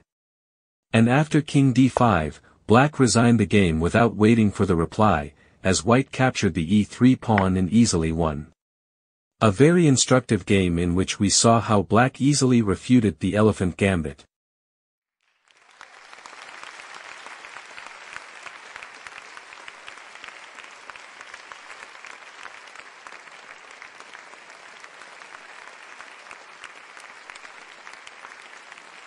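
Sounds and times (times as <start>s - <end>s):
crowd applauding: 15.2s - 29.0s.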